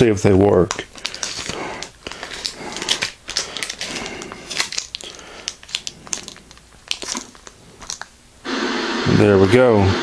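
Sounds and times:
plastic handling clicks and rustles: 0:00.5 - 0:08.2.

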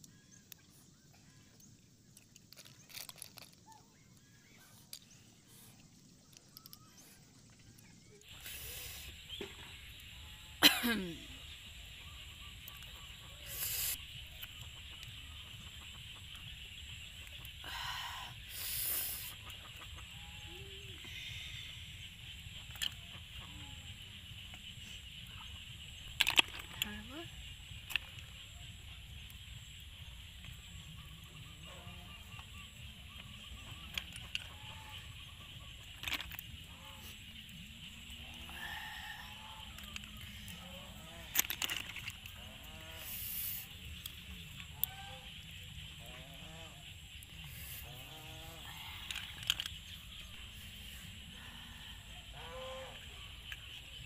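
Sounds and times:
snail shells clicking: 0:02.1 - 0:05.0, 0:06.2 - 0:07.0, 0:26.0 - 0:28.5, 0:33.6 - 0:35.0, 0:35.8 - 0:36.5, 0:39.2 - 0:42.8, 0:48.7 - 0:50.2
chickens clucking: 0:19.2 - 0:21.1.

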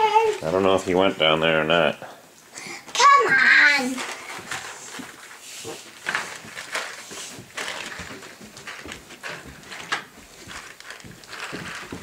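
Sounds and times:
footsteps on carpeted stairs: 0:05.6 - 0:12.0.

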